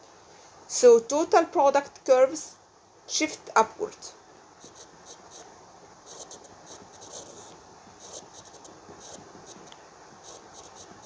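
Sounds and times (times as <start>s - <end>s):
stylus scratching on glass: 4.6s - 5.5s, 6.1s - 11.0s.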